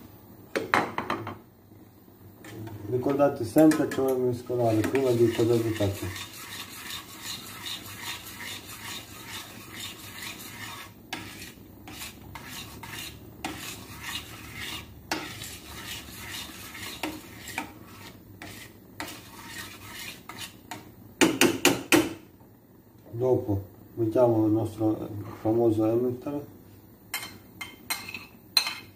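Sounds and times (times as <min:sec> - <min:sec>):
utensil scraping metal saucepan: 0:02.4 - 0:20.9
knocks against pan: 0:21.2 - 0:22.2.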